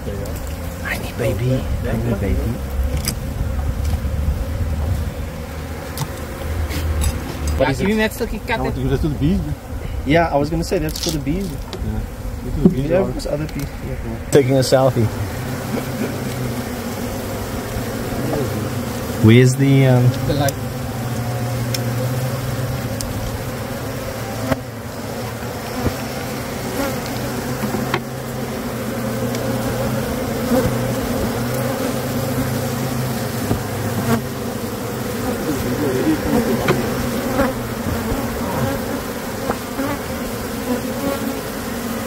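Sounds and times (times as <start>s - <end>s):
honey bees buzzing: 0.0s - 42.0s.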